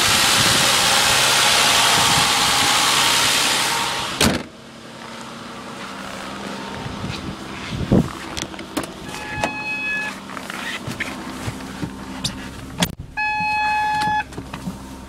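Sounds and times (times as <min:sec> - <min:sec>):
car engine idling: 0:00.0 - 0:15.0
car door thumping shut: 0:04.2 - 0:04.5
dashboard warning chime: 0:09.0 - 0:10.2, 0:13.2 - 0:14.3.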